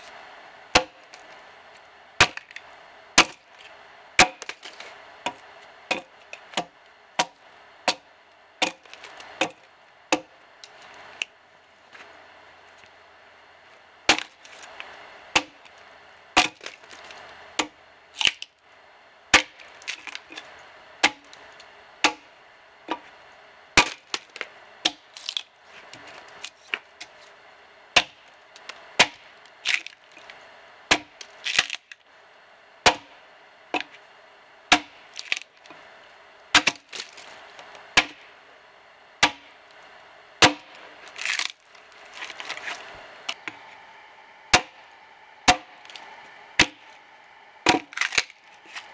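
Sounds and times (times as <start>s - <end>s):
axe chopping log: 0.7s - 1.1s, 2.2s - 2.6s, 3.2s - 3.5s, 4.2s - 4.6s, 5.2s - 10.4s, 14.1s - 14.4s, 15.3s - 15.7s, 16.4s - 16.8s, 17.6s - 18.4s, 19.3s - 20.3s, 21.0s - 21.4s, 22.0s - 22.3s, 23.8s - 25.5s, 28.0s - 28.3s, 29.0s - 29.9s, 30.9s - 31.8s, 32.8s - 33.2s, 34.7s - 35.5s, 36.5s - 37.0s, 37.9s - 38.3s, 39.2s - 39.6s, 40.4s - 41.6s, 44.5s - 44.8s, 45.5s - 46.8s, 47.6s - 48.9s
wood chips crackling: 19.4s - 20.6s, 29.4s - 30.4s, 35.0s - 35.8s, 36.6s - 38.2s, 40.5s - 48.9s.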